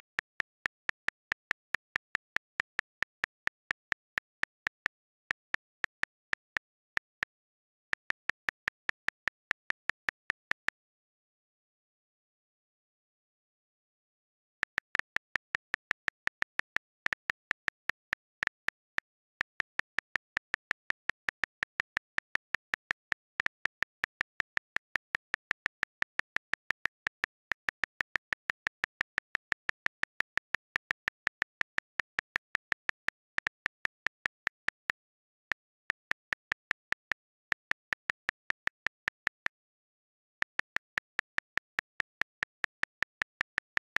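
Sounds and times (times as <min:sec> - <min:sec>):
calculator key clicks: 0:00.0 - 0:10.6.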